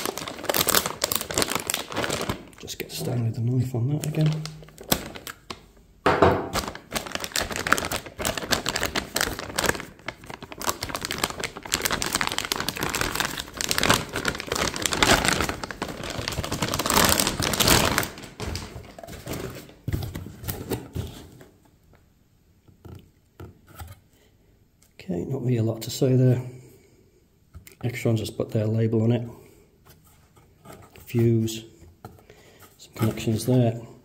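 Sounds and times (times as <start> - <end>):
plastic bag crinkling: 0.0 - 5.8, 6.4 - 20.2.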